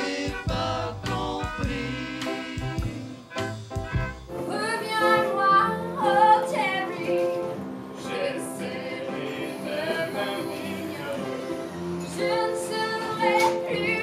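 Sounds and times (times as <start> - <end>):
woman singing: 4.5 - 14.0.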